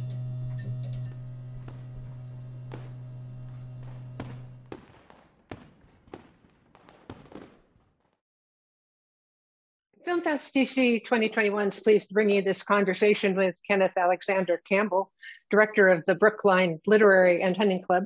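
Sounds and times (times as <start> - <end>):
steady low tone: 0.0 - 4.7
firework pops: 1.1 - 8.2
firework bangs and crackles: 1.5 - 8.2.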